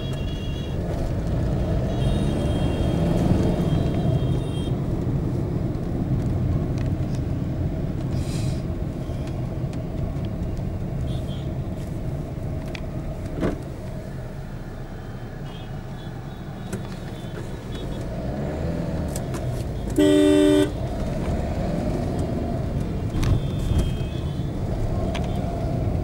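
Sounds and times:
dense city traffic rumble: 0:00.0 - 0:26.0
loud vehicle horn blast: 0:20.0 - 0:20.8, 0:23.2 - 0:24.4.

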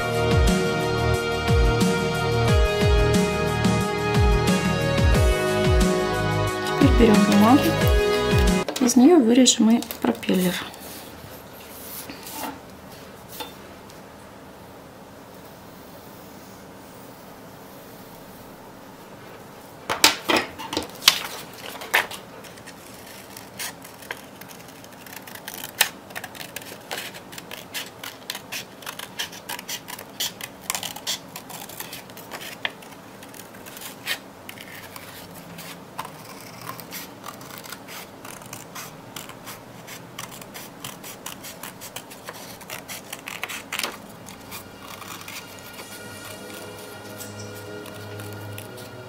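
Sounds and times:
scissors snipping paper: 0:20.6 - 0:49.0.

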